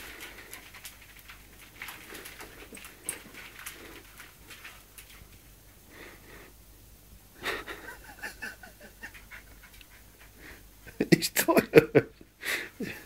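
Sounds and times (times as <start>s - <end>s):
puppy breathing and wheezing: 0.0s - 5.1s, 7.4s - 10.7s
puppy panting: 0.0s - 5.2s, 7.6s - 11.0s.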